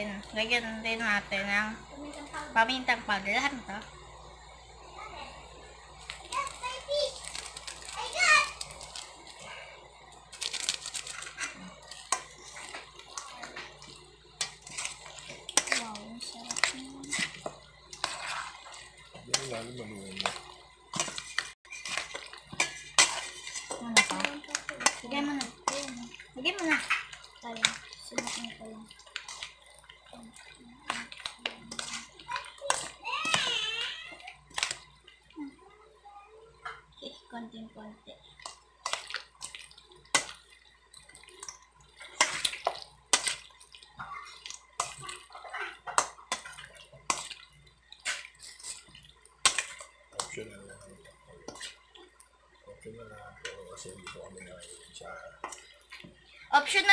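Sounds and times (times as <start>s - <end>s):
hands squelching wet food: 6.0s - 35.4s, 38.2s - 56.5s
metal spoon scraping steel bowl: 20.2s - 29.6s, 30.8s - 33.4s.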